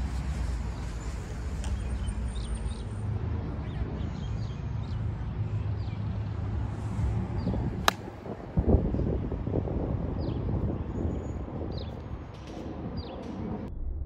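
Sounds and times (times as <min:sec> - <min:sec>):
steady low rumble: 0:07.6 - 0:14.0.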